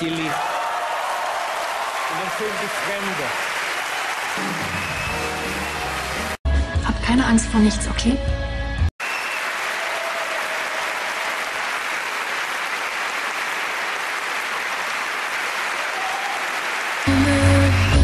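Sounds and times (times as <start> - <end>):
audience applauding: 0.0 - 6.4, 9.0 - 18.0
music: 4.4 - 8.9, 17.1 - 18.0.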